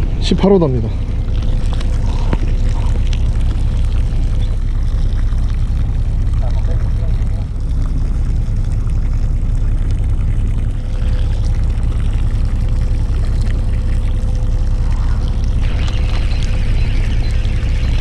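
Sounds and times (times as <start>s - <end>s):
boat engine rumbling: 0.0s - 18.0s
water splashing and hissing: 1.2s - 18.0s.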